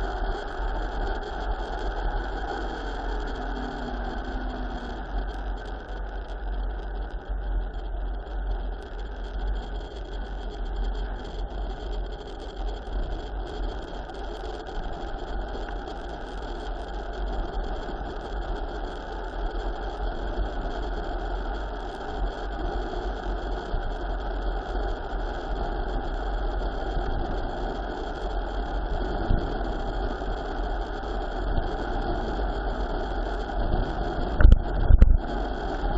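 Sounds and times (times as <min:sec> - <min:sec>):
wind rushing over microphone: 0:31.5 - 0:35.9.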